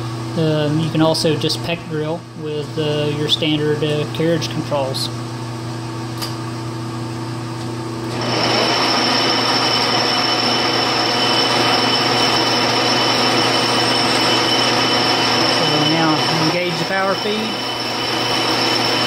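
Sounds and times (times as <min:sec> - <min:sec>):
lathe spindle whining: 0:08.1 - 0:19.0.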